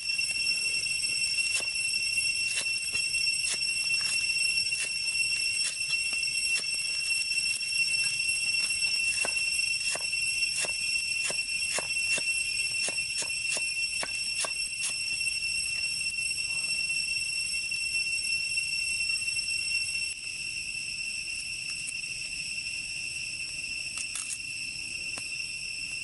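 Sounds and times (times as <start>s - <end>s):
high-pitched ringing drone: 0.0s - 26.0s.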